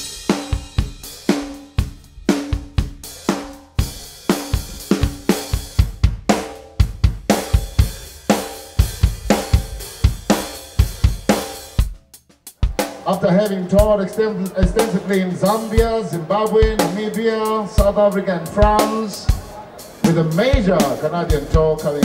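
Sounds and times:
drum kit playing a steady beat: 0.0s - 22.0s.

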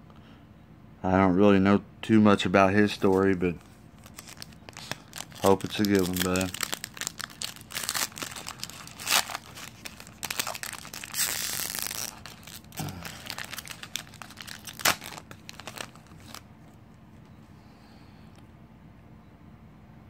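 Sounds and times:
foil wrapper tearing and crinkling: 4.0s - 16.4s.

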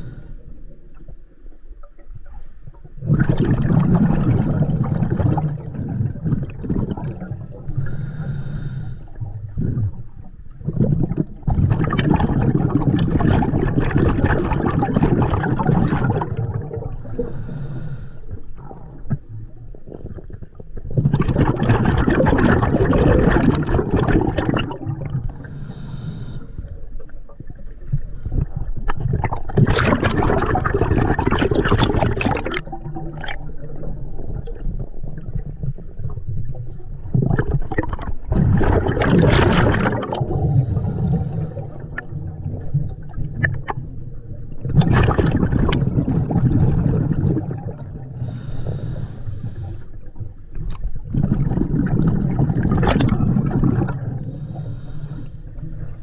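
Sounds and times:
regulator inhalation hiss: 0.0s - 0.4s, 7.8s - 9.2s, 17.0s - 18.4s, 25.4s - 26.7s, 40.4s - 41.9s, 48.2s - 50.0s, 54.2s - 55.5s
exhaled bubbles rushing: 2.9s - 8.2s, 9.1s - 17.6s, 18.5s - 25.7s, 26.9s - 54.7s.

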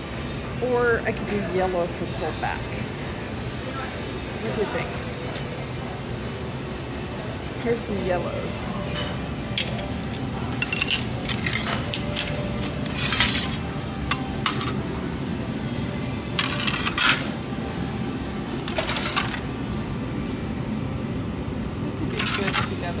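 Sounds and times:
glass sheets clinking: 9.0s - 14.9s, 22.2s - 22.8s.

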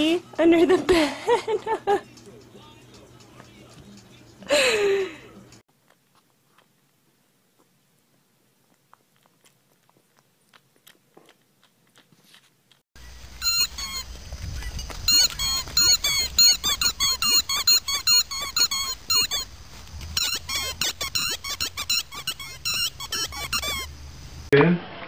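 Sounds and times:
squeaky toy squeaking: 13.4s - 24.0s.

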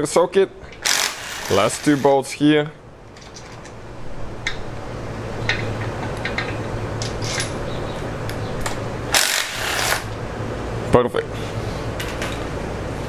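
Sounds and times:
power ratchet running: 0.8s - 2.0s, 9.1s - 10.1s.

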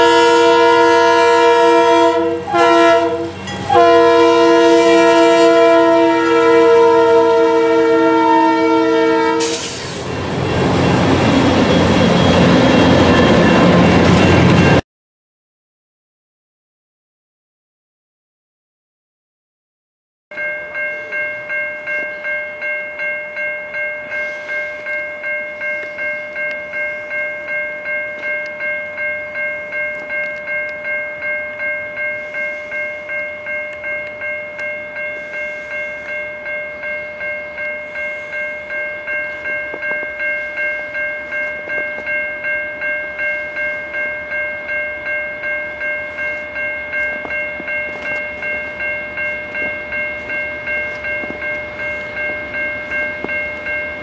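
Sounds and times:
railroad crossing bell ringing: 0.0s - 14.8s, 20.3s - 54.0s.

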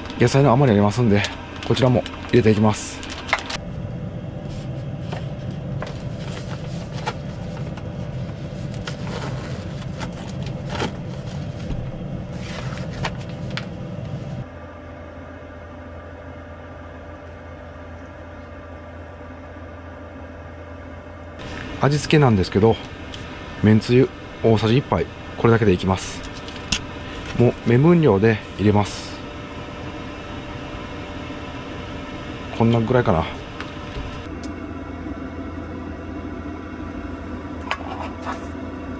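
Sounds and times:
low mechanical hum: 0.0s - 38.9s.

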